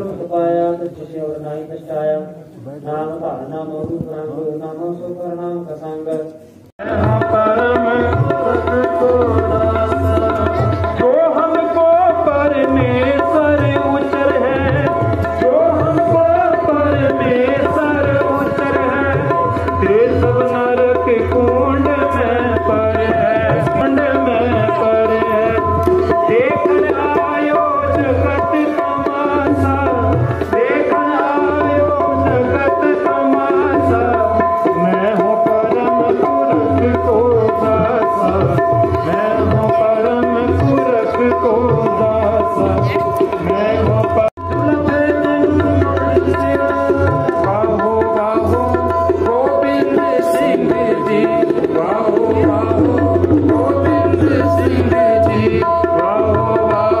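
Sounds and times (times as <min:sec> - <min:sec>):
tabla beat: 0:03.1 - 0:05.2, 0:06.0 - 0:57.0
harmonium notes: 0:06.8 - 0:57.0
person singing: 0:06.8 - 0:57.0.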